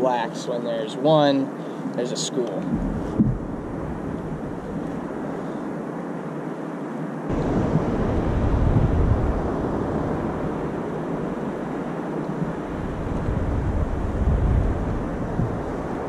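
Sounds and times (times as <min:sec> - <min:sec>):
wind buffeting microphone: 0:02.6 - 0:05.3, 0:07.3 - 0:16.0
sea water rushing: 0:07.3 - 0:16.0.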